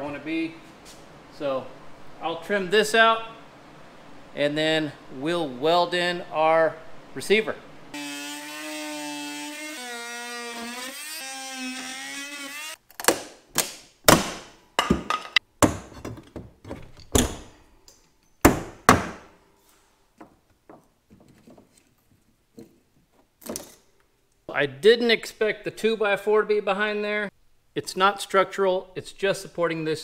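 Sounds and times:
oscillating multi-tool cutting wood: 0:08.0 - 0:12.8
sharp wooden knocks: 0:18.5 - 0:19.3.

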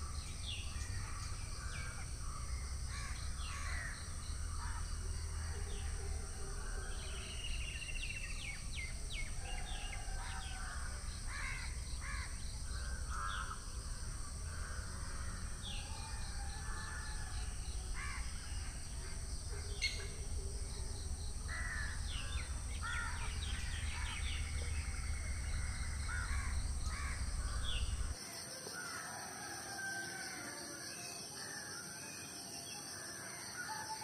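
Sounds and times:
low steady rumble: 0:00.0 - 0:28.2
birds calling: 0:14.4 - 0:28.2.

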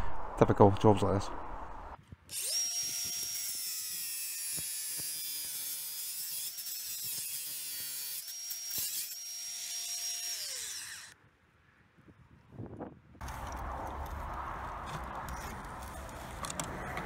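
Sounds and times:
angle grinder cutting bolt: 0:02.3 - 0:11.2.

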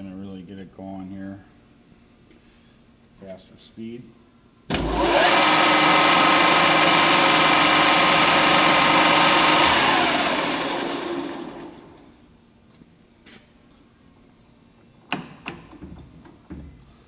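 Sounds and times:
lathe running with whine: 0:04.7 - 0:12.1.

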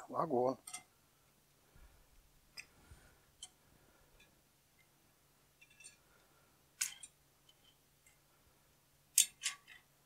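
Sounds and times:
faint metallic clicks and clinks: 0:00.6 - 0:01.0, 0:05.6 - 0:06.2, 0:06.8 - 0:08.2.

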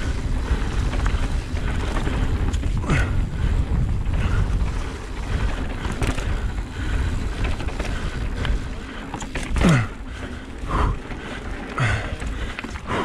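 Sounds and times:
bike tyre rumble and clacks: 0:00.0 - 0:13.0
wind buffeting microphone: 0:00.0 - 0:13.0.

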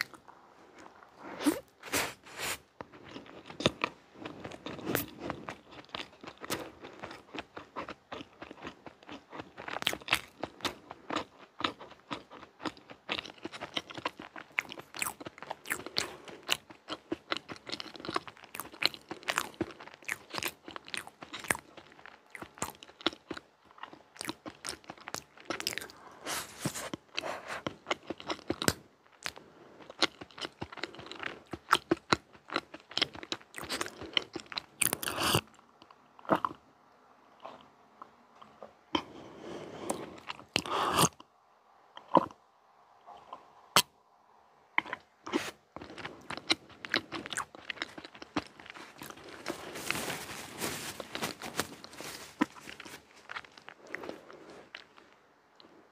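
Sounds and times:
close-miked chewing: 0:00.0 - 0:36.6, 0:39.8 - 0:41.3, 0:44.8 - 0:55.9.

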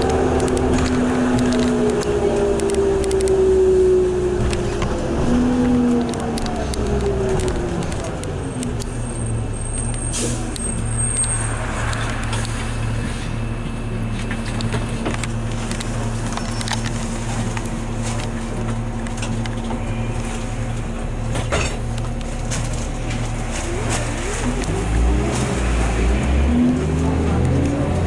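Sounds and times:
bus diesel engine idling: 0:00.0 - 0:28.0.

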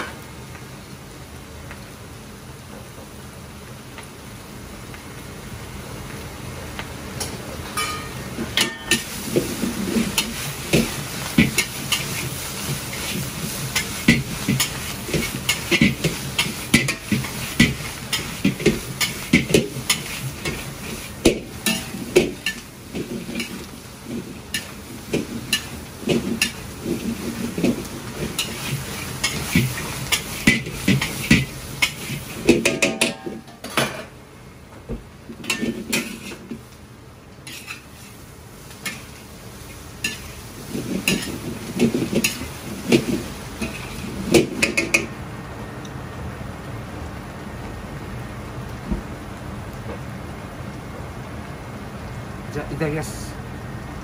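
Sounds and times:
food sizzling: 0:00.0 - 0:53.2
metal ladle scraping a wok: 0:35.5 - 0:36.4, 0:37.5 - 0:37.9.

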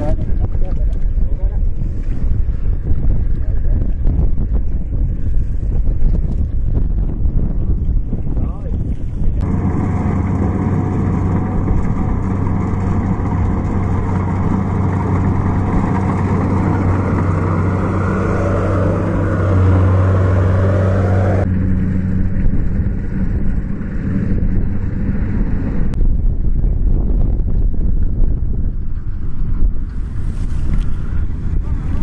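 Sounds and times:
low diesel engine hum: 0:09.3 - 0:32.0
threshing machinery rush: 0:09.4 - 0:26.0.

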